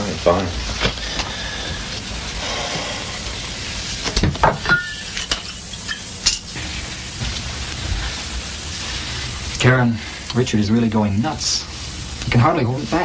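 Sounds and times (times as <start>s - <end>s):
steady hiss: 0.0s - 13.0s
glass clinks and knocks: 4.2s - 6.4s.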